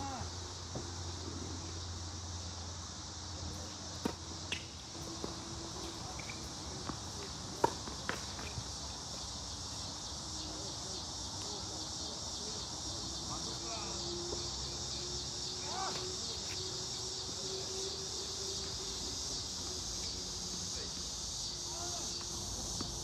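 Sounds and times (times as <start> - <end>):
high insect chorus: 0.0 - 23.0.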